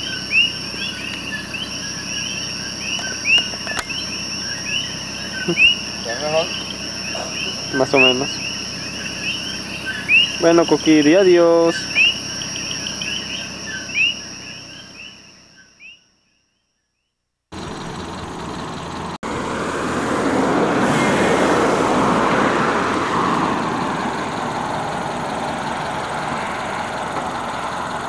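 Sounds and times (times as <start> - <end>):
vehicle engine and road noise: 0.0 - 15.6, 17.5 - 28.0
frogs chirping: 0.0 - 19.1, 21.7 - 28.0
insect trill: 0.0 - 19.1, 23.1 - 28.0.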